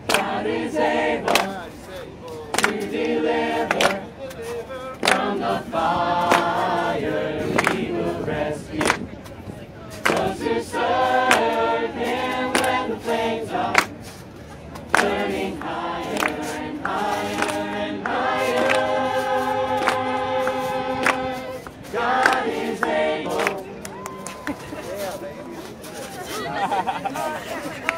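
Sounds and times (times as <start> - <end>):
gospel ensemble singing a cappella: 0.0 - 1.8, 2.5 - 4.2, 5.0 - 9.1, 10.0 - 14.0, 14.9 - 23.8
sharp rhythmic taps: 6.2 - 6.8, 10.0 - 14.0, 14.8 - 23.6.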